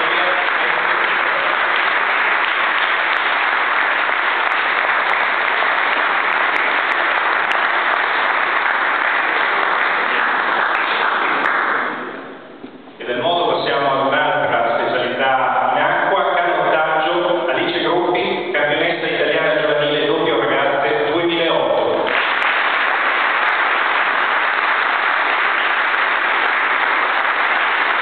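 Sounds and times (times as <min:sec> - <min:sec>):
audience applauding: 0:00.0 - 0:12.4, 0:22.0 - 0:28.0.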